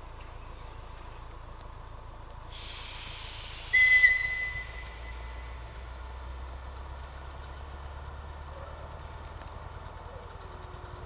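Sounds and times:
low rumble of train: 0.0s - 11.0s
train whistle blast: 3.7s - 5.2s.

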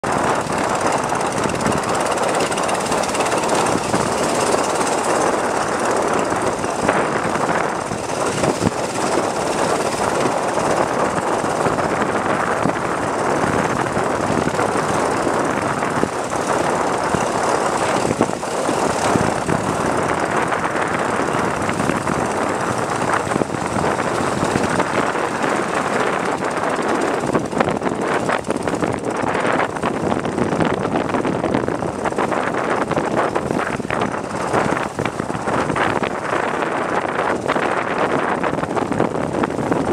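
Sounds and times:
boat engine drone: 0.0s - 39.9s
wind: 0.0s - 39.9s.

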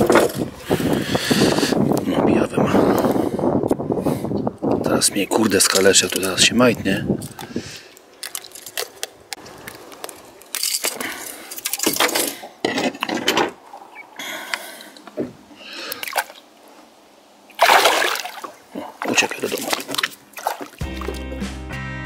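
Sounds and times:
loud water splash: 17.6s - 21.2s.

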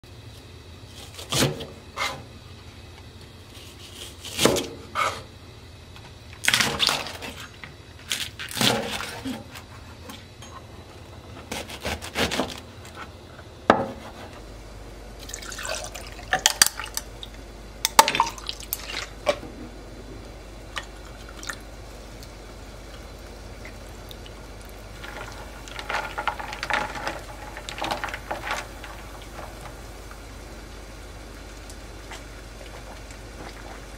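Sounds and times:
knife slicing leek: 11.5s - 12.6s
liquid pouring over ice: 15.2s - 17.0s, 24.0s - 29.5s.

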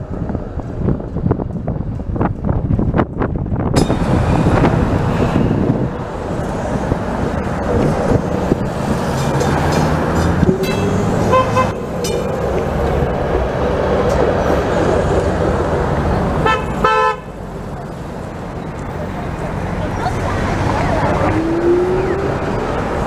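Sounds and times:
road traffic: 0.0s - 23.0s
streetcar wheels rumbling: 0.0s - 23.0s.

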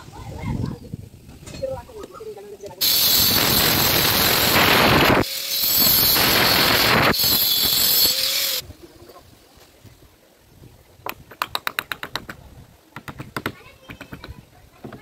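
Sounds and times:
angle grinder cutting pipe: 2.8s - 8.6s.

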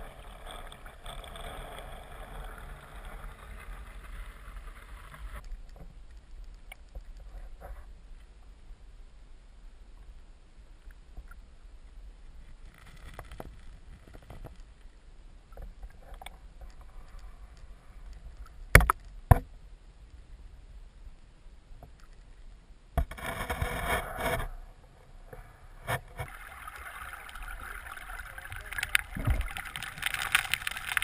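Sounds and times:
underwater stream rumble: 0.0s - 6.6s, 23.4s - 31.0s
faint ticks and scrapes: 0.0s - 8.8s, 9.9s - 31.0s.

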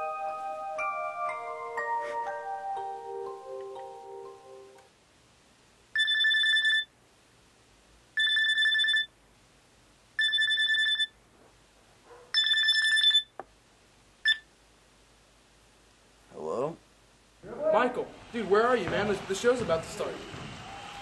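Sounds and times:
electronic telephone ringing: 6.0s - 6.9s, 8.2s - 9.1s, 10.2s - 11.1s, 12.4s - 13.3s.

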